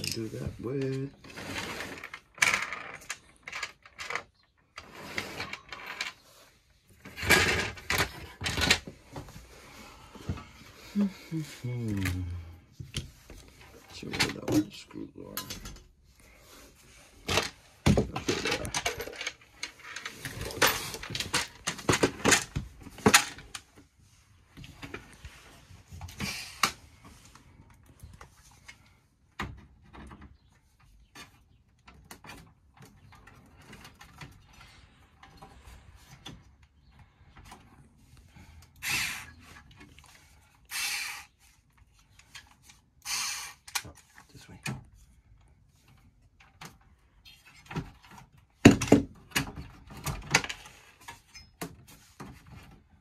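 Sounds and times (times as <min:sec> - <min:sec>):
screwdriver bits rattling in plastic case: 0:17.3 - 0:23.6.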